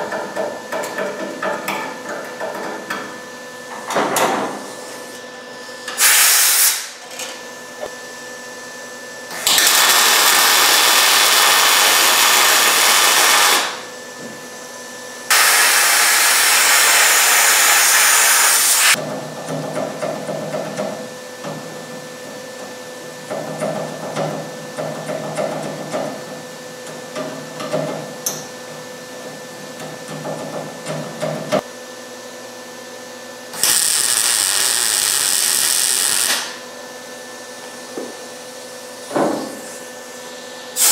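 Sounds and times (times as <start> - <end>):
welder buzzing: 5.9 - 7.0, 9.3 - 14.0, 15.3 - 19.0, 33.5 - 36.6, 39.5 - 40.9.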